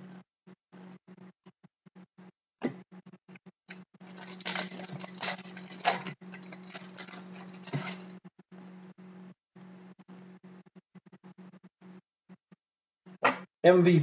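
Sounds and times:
steady low hum: 0:03.7 - 0:12.0
cards rustling: 0:04.0 - 0:08.1.

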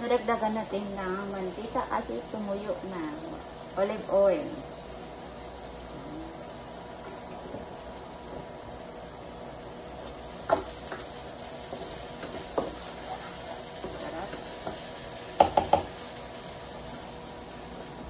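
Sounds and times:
oil sizzling in wok: 0:00.0 - 0:18.0
spatula knocking on pan: 0:10.5 - 0:11.1, 0:11.7 - 0:12.9, 0:13.8 - 0:16.0.

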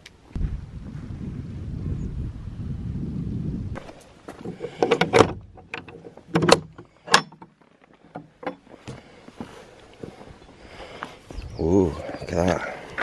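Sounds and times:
metal latch clicks: 0:04.6 - 0:07.5.

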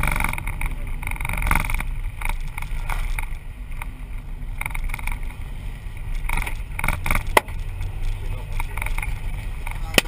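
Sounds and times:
road and wind noise in car: 0:00.0 - 0:10.0.

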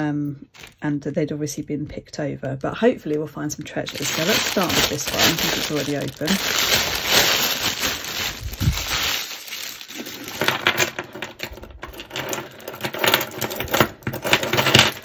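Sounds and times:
plastic bag crinkling: 0:00.5 - 0:00.8, 0:03.6 - 0:13.7
bangles and beads clinking: 0:03.9 - 0:15.0.

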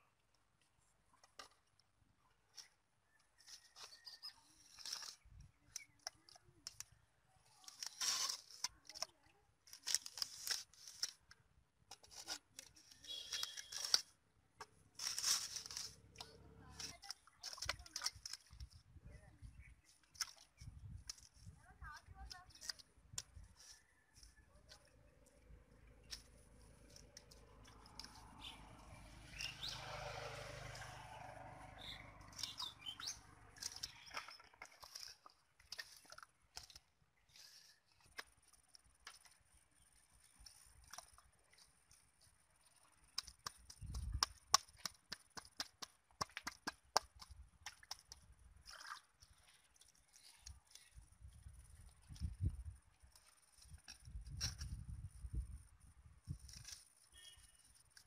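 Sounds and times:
hands scooping wet mud: 0:02.6 - 0:11.3, 0:11.9 - 0:18.8, 0:19.7 - 0:25.0, 0:25.7 - 0:58.0
falling bird chirps: 0:12.9 - 0:14.0, 0:28.1 - 0:29.9, 0:31.6 - 0:34.5.

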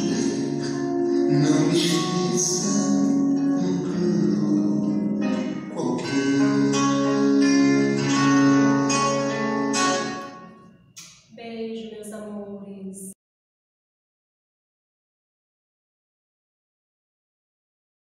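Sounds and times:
music with held notes: 0:00.0 - 0:10.8.

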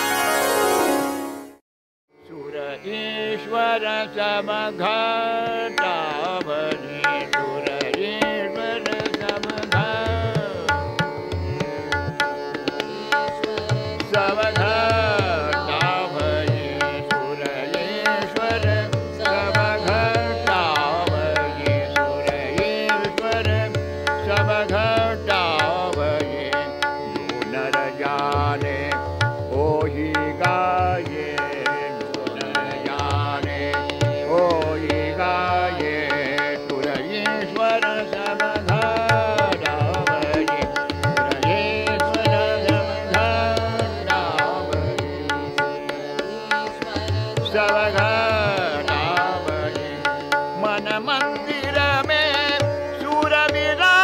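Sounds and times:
tanpura drone: 0:00.0 - 0:01.5, 0:02.3 - 0:54.0
man singing devotional song: 0:02.2 - 0:54.0
tabla strokes: 0:37.5 - 0:54.0.

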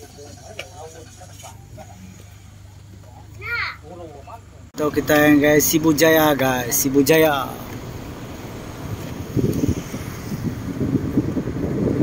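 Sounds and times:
slowly moving car rumble: 0:00.0 - 0:12.0
wind buffeting microphone: 0:07.7 - 0:12.0.

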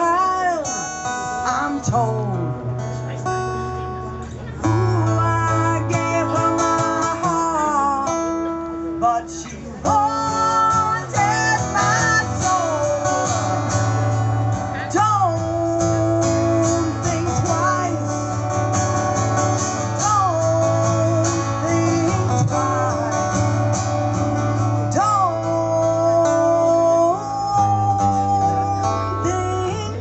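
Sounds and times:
acoustic guitar strumming: 0:00.0 - 0:30.0
woman singing: 0:09.0 - 0:13.2, 0:20.0 - 0:23.2, 0:24.9 - 0:30.0.

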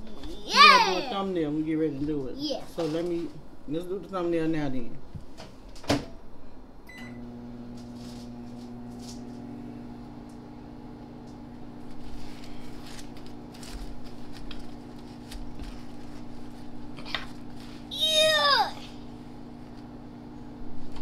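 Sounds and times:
low electrical hum: 0:00.0 - 0:21.0
foil wrapper crinkling: 0:11.9 - 0:17.9.

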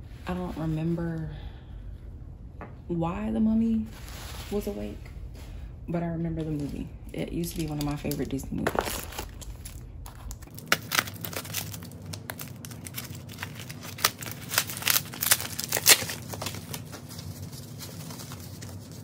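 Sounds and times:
plastic wrapping crinkling and tearing: 0:07.5 - 0:19.0
scissors cutting plastic: 0:07.6 - 0:16.7.

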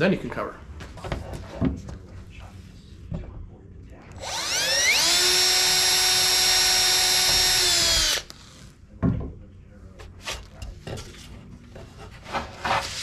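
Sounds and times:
cordless drill motor whining: 0:04.1 - 0:08.6
drill handling clicks: 0:04.2 - 0:08.5.

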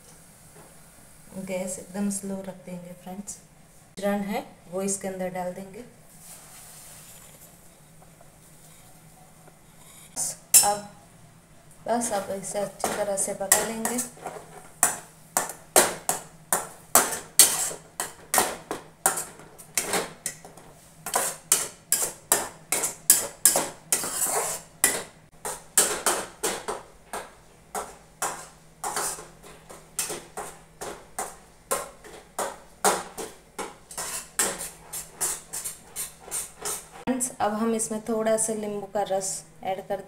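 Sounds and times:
spatula scraping a pan: 0:16.9 - 0:26.7, 0:27.8 - 0:31.4, 0:32.9 - 0:37.1.

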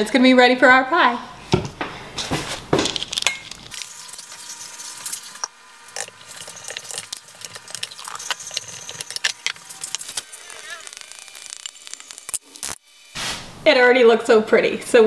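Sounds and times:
spoon stirring in a mixing bowl: 0:03.2 - 0:12.1.

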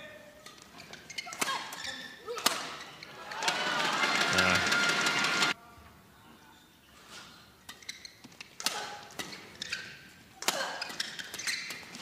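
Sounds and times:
shoes squeaking on court floor: 0:00.3 - 0:03.2, 0:06.9 - 0:12.0.

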